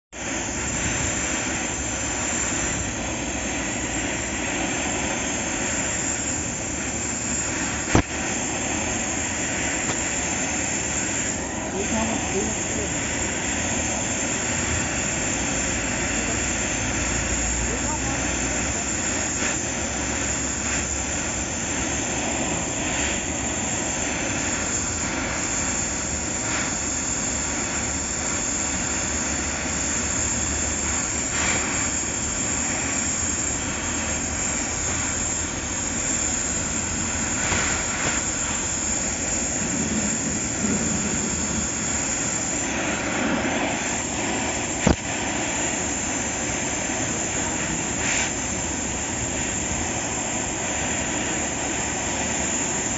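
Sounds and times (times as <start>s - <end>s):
welding torch flame hissing: 0.1s - 52.9s
sharp click: 44.8s - 45.1s.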